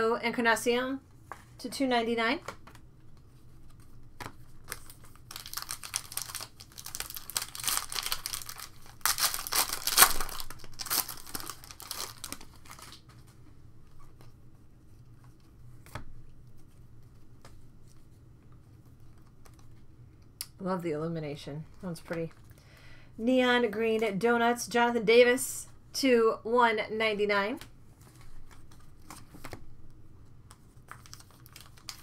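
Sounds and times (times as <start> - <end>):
cards rustling: 2.4 - 14.3, 30.5 - 32.0
foil wrapper tearing and crinkling: 4.7 - 13.1, 30.9 - 32.0.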